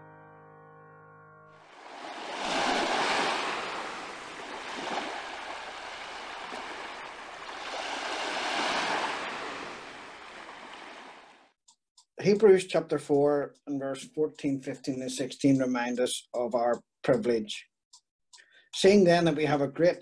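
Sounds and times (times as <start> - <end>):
waves washing onto pebbles: 1.7 - 11.4.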